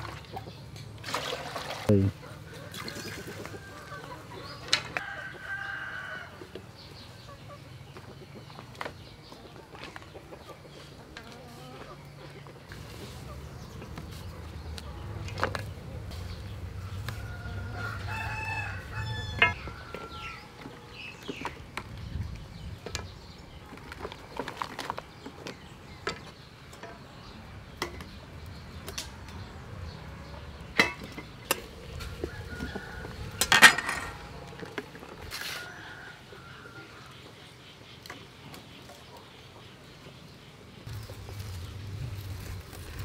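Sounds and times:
rooster crowing: 4.9 - 6.4, 17.2 - 20.5.

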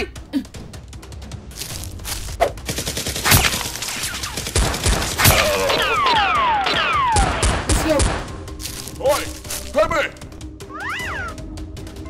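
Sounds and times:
rapid gunfire: 2.6 - 8.3.

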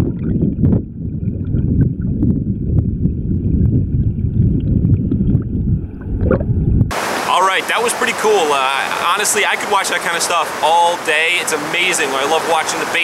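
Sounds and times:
muffled underwater stream rumble: 0.0 - 7.1.

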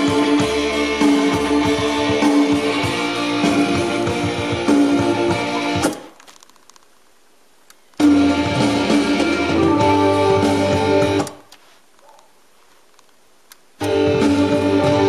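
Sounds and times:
music from cassette deck: 0.0 - 6.5, 8.0 - 11.4, 13.8 - 15.0
tape deck hiss: 0.0 - 15.0.

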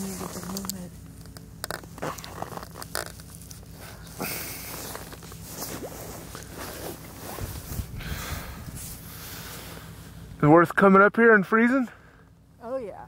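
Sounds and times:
clothing rustling: 1.8 - 8.0
footsteps crunching on snow: 1.9 - 8.0.

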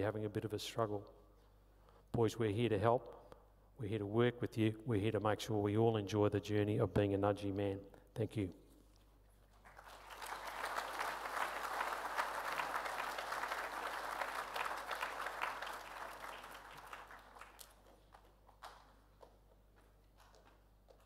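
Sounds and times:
audience applauding: 9.5 - 19.0.

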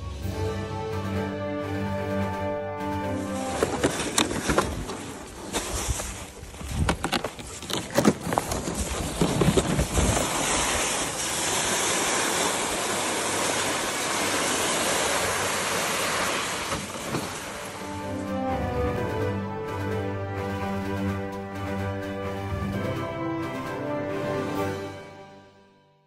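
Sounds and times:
sled scraping over snow: 3.0 - 18.6
footsteps crunching on snow: 3.2 - 11.7.

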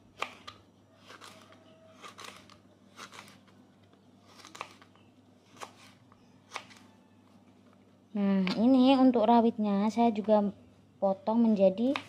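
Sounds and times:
knife slicing on cutting board: 5.5 - 6.8.

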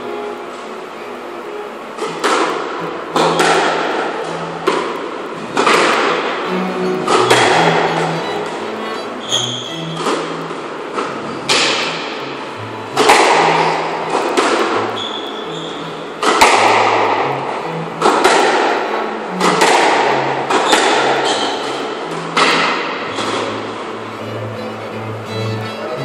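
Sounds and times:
squash ball smacks: 2.0 - 2.6, 3.2 - 4.0, 11.0 - 12.1, 13.0 - 14.9, 16.2 - 17.2, 18.0 - 18.8, 19.4 - 21.6.

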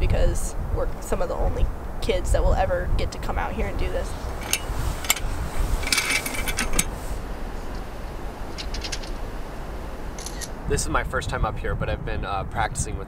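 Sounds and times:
low steady rumble: 0.0 - 13.0
metallic clinks of equipment: 4.4 - 6.9, 8.5 - 9.2, 10.2 - 10.5.

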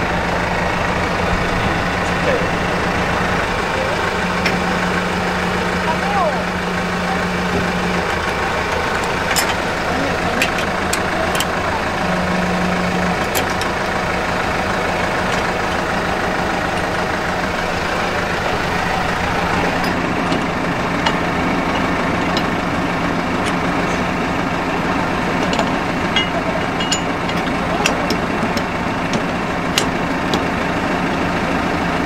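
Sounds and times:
tractor engine idling: 0.0 - 32.0
clicks and clinks of hand work: 9.0 - 9.6, 10.4 - 11.5, 25.4 - 30.5.

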